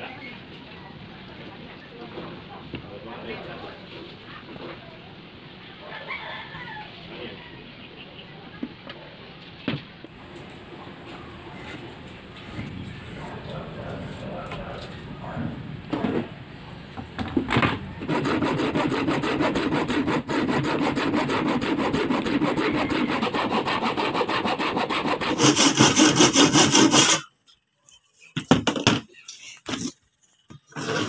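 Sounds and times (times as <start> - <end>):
hand saw cutting wood: 18.0 - 27.3, 29.6 - 31.0.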